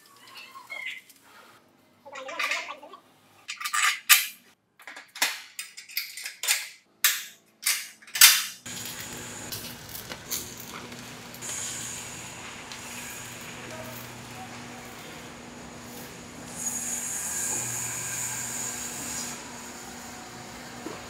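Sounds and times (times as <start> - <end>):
welding arc crackling hiss: 8.6 - 21.0.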